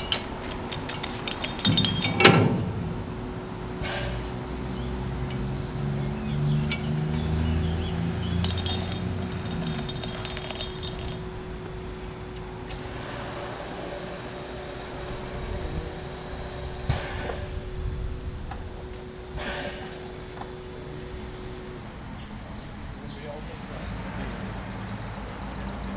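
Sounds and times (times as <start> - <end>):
light clinking: 0.0 - 2.7, 6.6 - 11.7
low rumbling: 0.0 - 23.9
steam locomotive humming: 0.0 - 25.8
hissing steam: 12.7 - 21.1.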